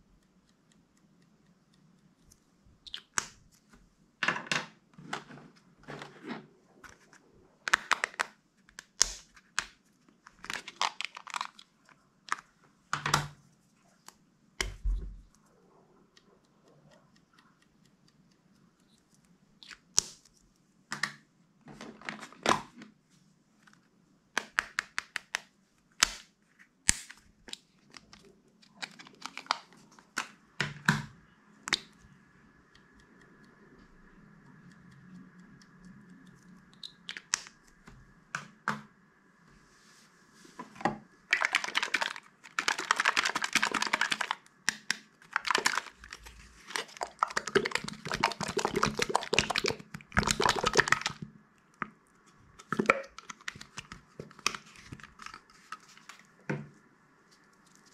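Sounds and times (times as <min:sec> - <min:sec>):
plastic containers clicking and crinkling: 0:07.7 - 0:13.4, 0:27.1 - 0:31.1, 0:40.8 - 0:56.7.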